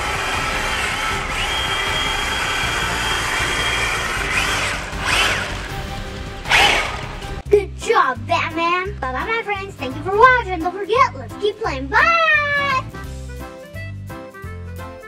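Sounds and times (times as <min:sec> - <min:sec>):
toy car electric motor whining: 0:00.0 - 0:07.4.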